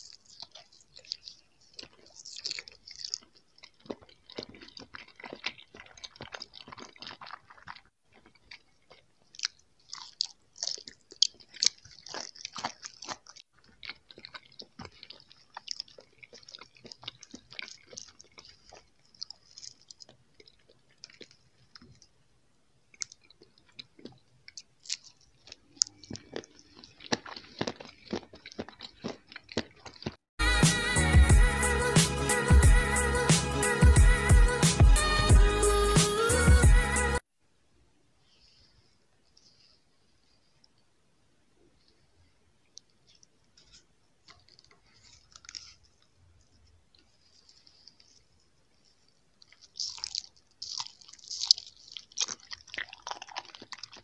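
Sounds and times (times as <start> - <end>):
mouth clicks and crackles: 0.0 - 30.2, 42.7 - 54.0
person chewing candy: 0.0 - 37.3, 38.3 - 41.0, 41.6 - 54.0.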